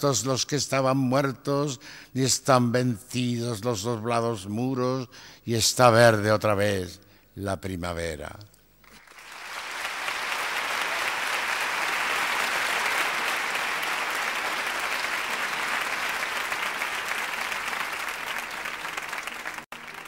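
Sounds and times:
audience applauding: 8.9s - 20.0s.

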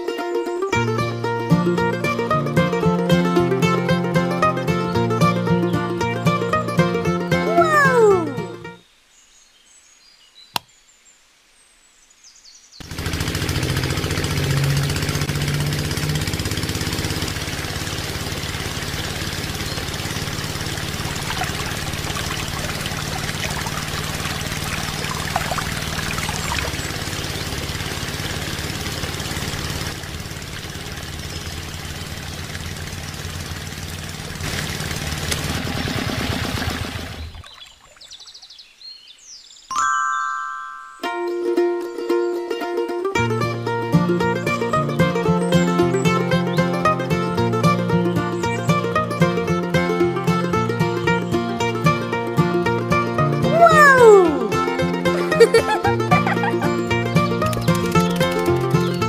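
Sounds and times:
click: 10.5s - 10.7s
small water pump running: 12.8s - 37.9s, 54.4s - 59.0s.

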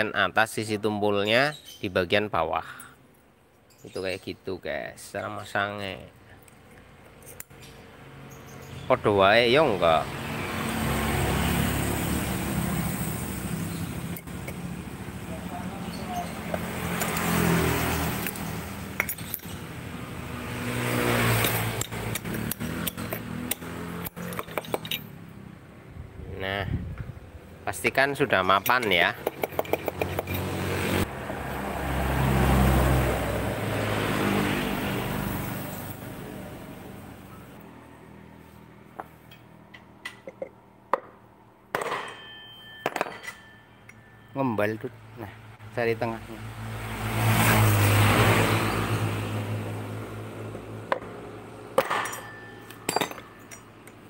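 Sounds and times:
passing vehicle engine hum: 9.6s - 26.2s, 29.6s - 39.7s, 45.0s - 51.8s
metallic clicks and clinks: 21.4s - 25.2s, 51.8s - 54.0s.

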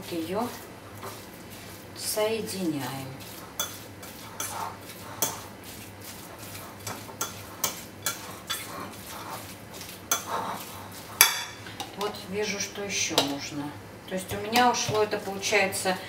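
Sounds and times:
fork scraping ceramic bowl: 3.2s - 11.6s.

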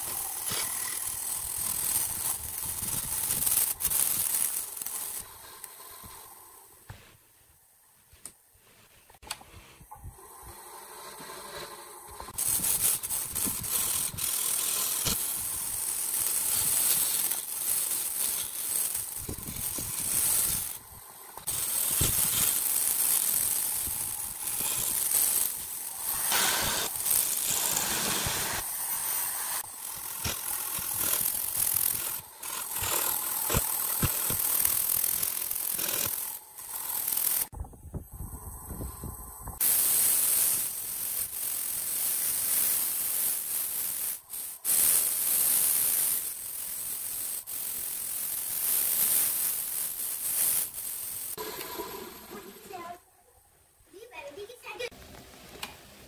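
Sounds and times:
lathe tool scraping wood: 0.0s - 6.6s, 10.4s - 37.5s, 51.3s - 52.9s
lathe humming: 51.4s - 52.7s.

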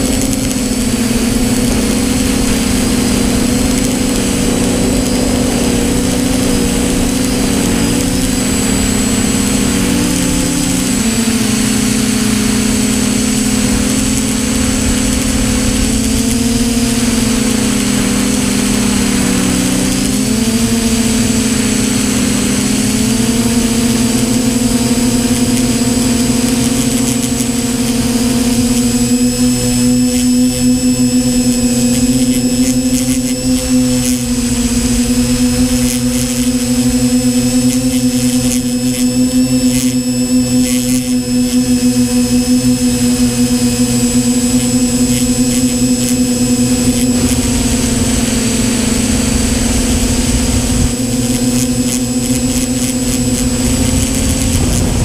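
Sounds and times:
drone propellers humming: 0.0s - 55.0s
rush of air: 53.5s - 55.0s.

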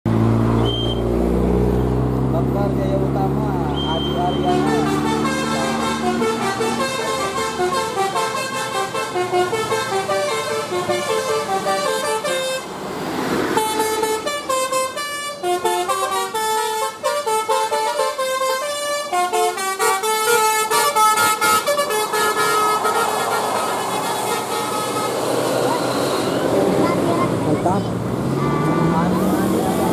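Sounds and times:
bus melody horn playing tune: 3.8s - 12.7s, 13.5s - 26.4s.

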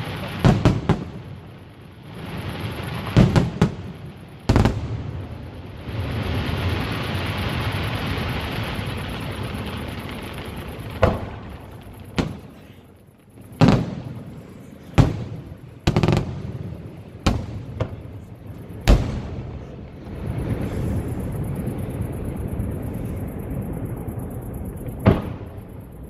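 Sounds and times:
dense continuous rumble: 0.0s - 26.0s
firework shells bursting: 6.5s - 20.0s
rolling echo: 7.6s - 20.8s.

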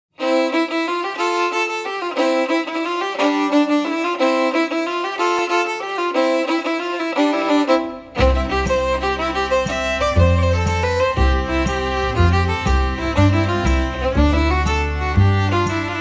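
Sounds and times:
fiddle playing lively melody: 0.1s - 16.0s
low bass line: 8.2s - 16.0s.

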